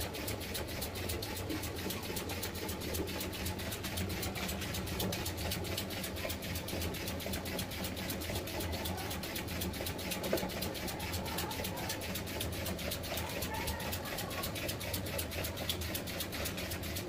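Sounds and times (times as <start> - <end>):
steam engine chuffing and clicking: 0.0 - 17.0.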